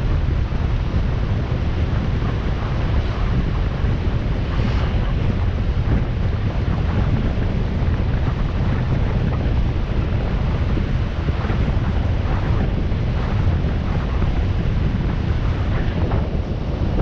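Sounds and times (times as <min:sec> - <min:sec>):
wind rushing over microphone: 0:00.0 - 0:17.0.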